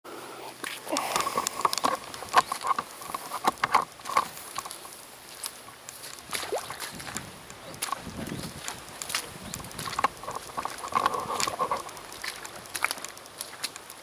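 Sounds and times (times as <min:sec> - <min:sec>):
footsteps on muddy track: 0:00.5 - 0:14.0.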